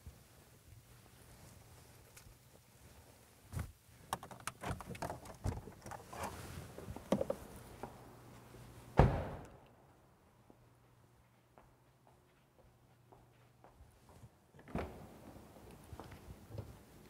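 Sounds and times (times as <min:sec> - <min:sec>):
handling clicks and knocks in car: 0:04.1 - 0:07.4
loud heavy thump: 0:09.0 - 0:09.4.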